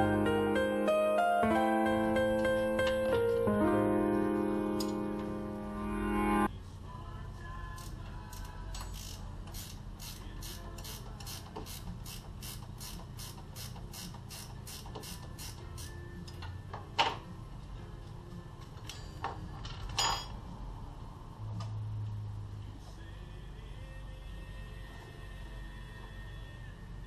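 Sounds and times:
ratchet wrench clicking: 0:07.8 - 0:16.4.

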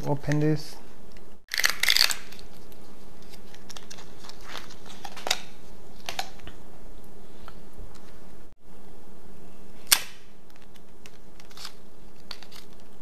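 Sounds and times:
low background hum: 0:00.0 - 0:13.0
cable clicks and rustles: 0:10.4 - 0:13.0.

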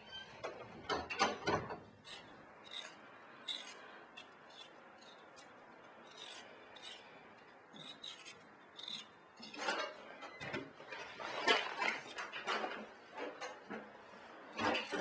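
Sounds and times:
blade scraping potato skin: 0:02.0 - 0:09.8.

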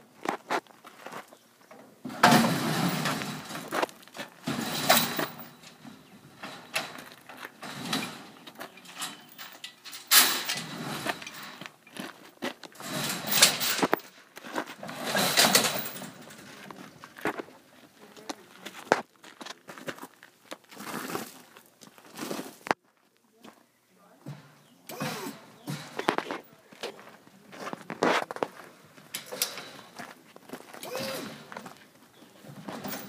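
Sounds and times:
metal lift platform clanking: 0:01.7 - 0:11.7, 0:12.8 - 0:14.0, 0:14.8 - 0:16.5, 0:24.3 - 0:26.4, 0:29.1 - 0:30.1, 0:30.9 - 0:31.8, 0:32.5 - 0:33.0.

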